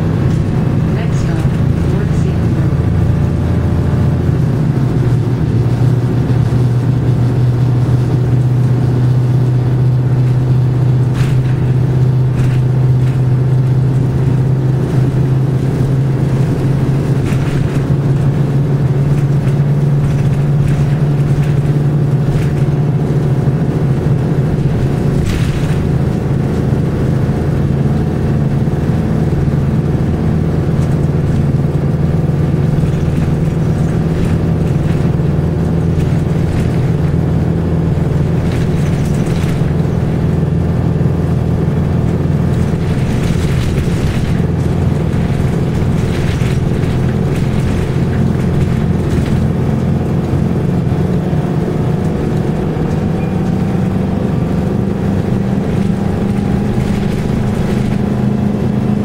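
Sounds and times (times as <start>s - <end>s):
bus diesel engine drone: 0.0s - 59.0s
sharp rattles: 9.5s - 27.8s, 30.2s - 50.2s, 55.4s - 58.4s.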